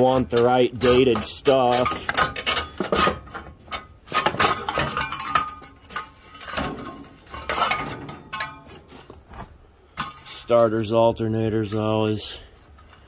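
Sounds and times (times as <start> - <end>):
rusty metal parts clanking: 0.0 - 13.0.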